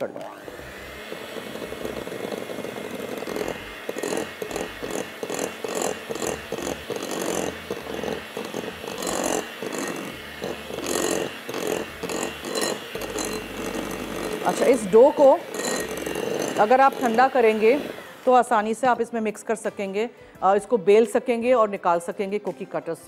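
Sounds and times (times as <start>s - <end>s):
electric mixer beating dough: 0.0s - 19.9s
beaters scraping glass bowl: 1.3s - 17.9s.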